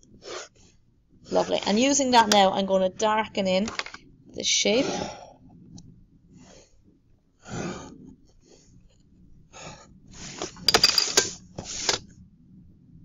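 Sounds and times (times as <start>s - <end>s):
plastic set square sliding: 10.1s - 12.1s.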